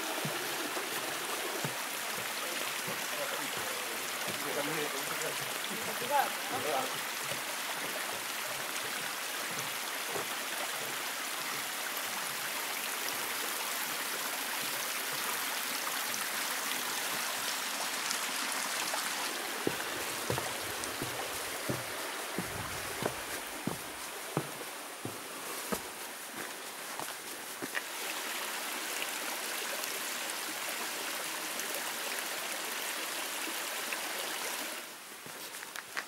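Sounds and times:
footsteps on a path: 0.0 - 4.5, 19.2 - 27.9
stream water rushing: 0.0 - 36.0.

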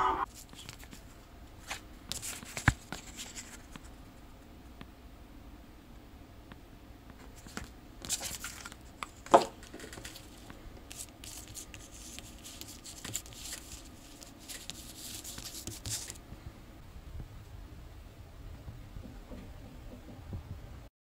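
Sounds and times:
paper stickers rustling: 0.4 - 3.8, 7.4 - 16.2.

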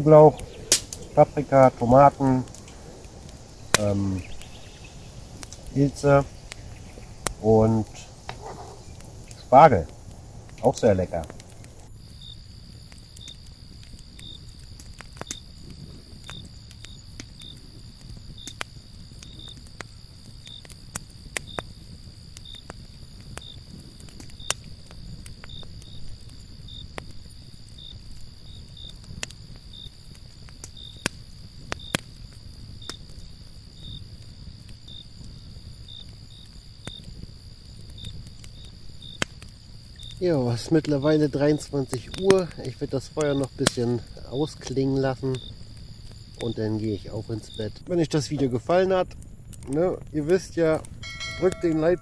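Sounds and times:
campfire crackling and popping: 0.0 - 52.0
high-pitched whine: 50.9 - 52.0
short high chirp: 51.0 - 52.0.

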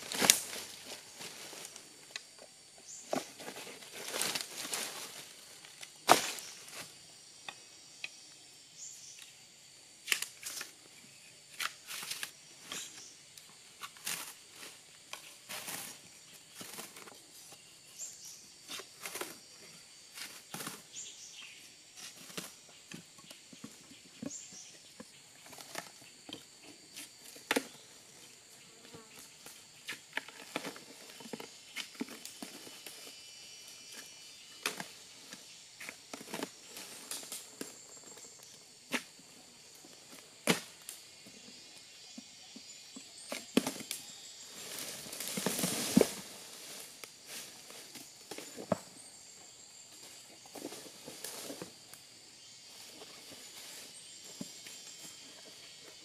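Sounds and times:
wood and brush snapping: 0.0 - 0.6, 10.0 - 10.7
insects droning: 0.0 - 56.0.

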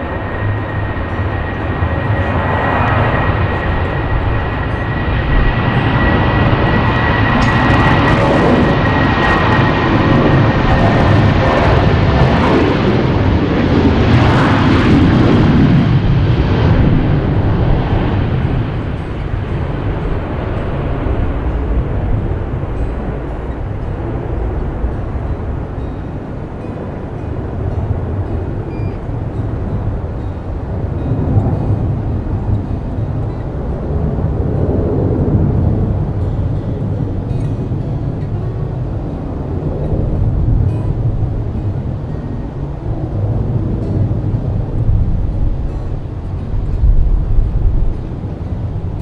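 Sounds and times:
jet engines roaring: 0.0 - 49.0.

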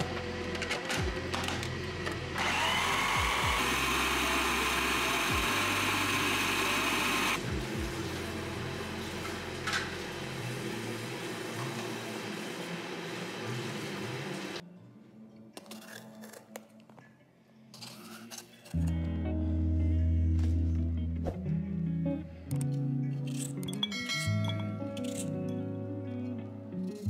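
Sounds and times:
food processor motor whine: 2.3 - 7.4.

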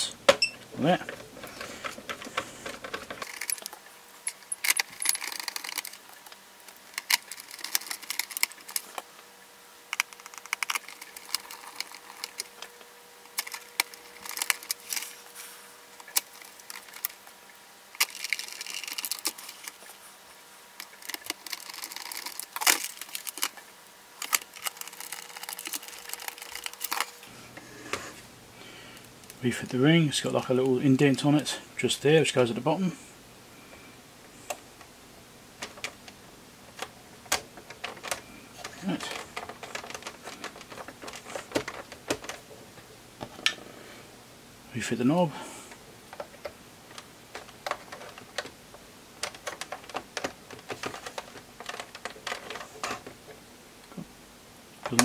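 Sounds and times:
plastic unit and tools handled: 1.0 - 6.3, 9.9 - 17.2, 18.0 - 19.9, 24.2 - 27.2, 35.6 - 43.6, 46.1 - 53.3.

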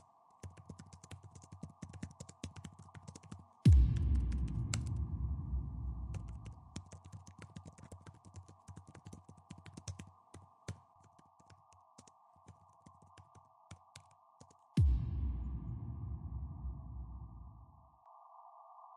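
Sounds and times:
keyboard typing clicks: 0.4 - 3.4, 6.2 - 14.6
deep low rumble: 3.7 - 6.7, 14.8 - 17.8.

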